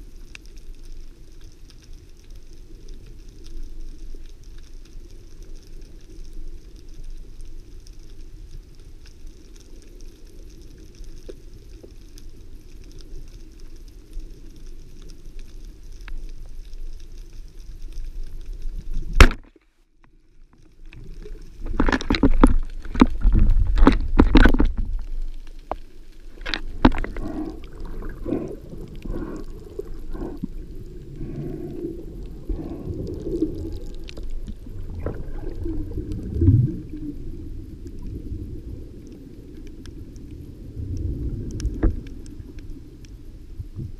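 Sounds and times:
underwater hum and hiss: 0.0 - 43.9.

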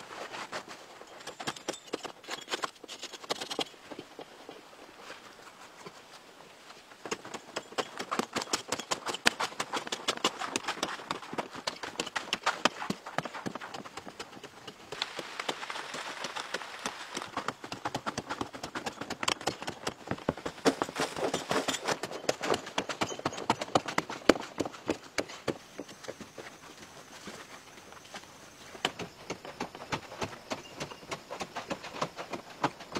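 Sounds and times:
digging tool striking sandy earth: 7.0 - 22.8
loose soil falling: 14.9 - 17.5.

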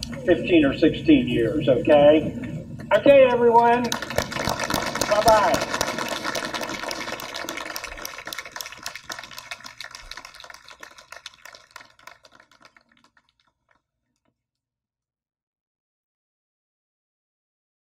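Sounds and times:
audience clapping: 3.8 - 13.8.

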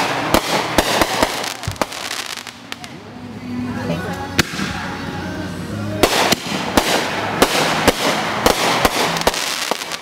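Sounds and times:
fireworks bangs: 0.0 - 2.9, 6.0 - 10.0.

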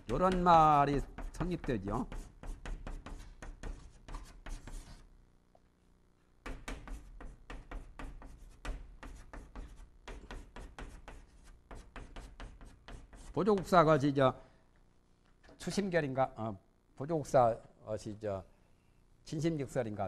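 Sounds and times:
chalk scratching on blackboard: 0.1 - 5.1, 6.4 - 13.8.

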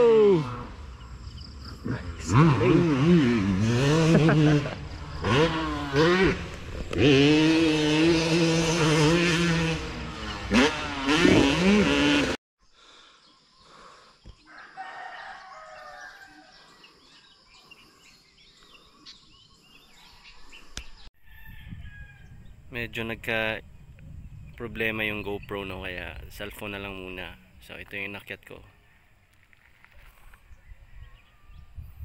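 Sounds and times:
dirt bike engine revving: 0.0 - 12.4.

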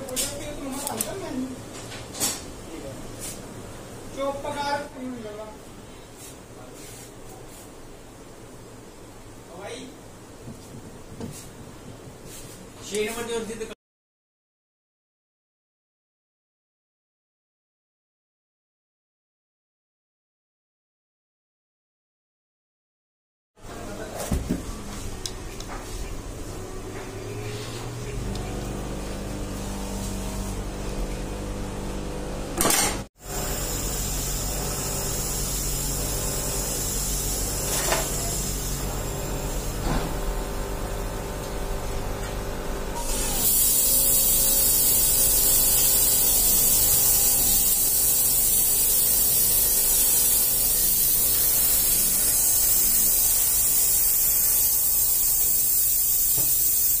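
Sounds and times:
motor humming: 24.7 - 55.5
compressed air hissing: 33.2 - 40.2, 43.0 - 57.0.

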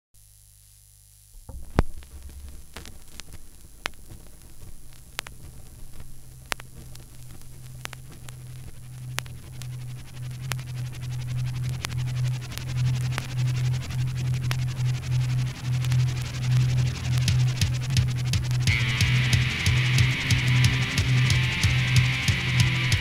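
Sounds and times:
low hum: 0.3 - 23.0
vinyl surface noise: 0.3 - 23.0
record scratch clicks: 1.2 - 23.0
stylus set down on vinyl: 1.4 - 8.4.

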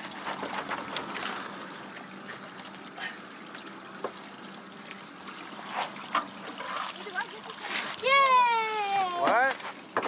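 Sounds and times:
water splashing and trickling: 0.0 - 10.0.

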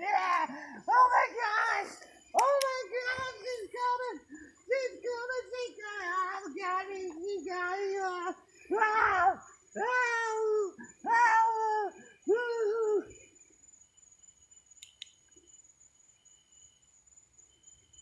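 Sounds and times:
high-pitched wailing cries: 0.0 - 13.2.

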